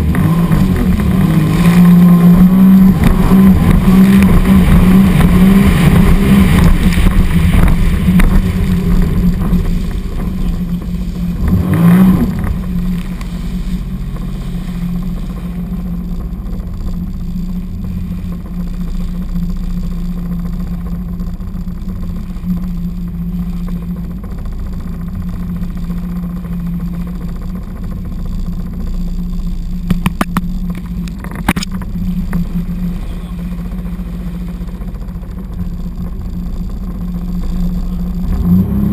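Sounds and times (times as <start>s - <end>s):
watercraft engine droning: 0.0s - 38.9s
sharp clicks: 29.8s - 32.4s.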